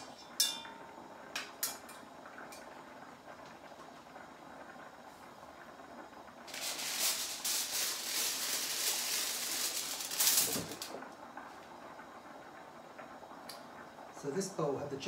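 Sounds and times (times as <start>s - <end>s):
plastic bag rustling: 6.5s - 11.0s.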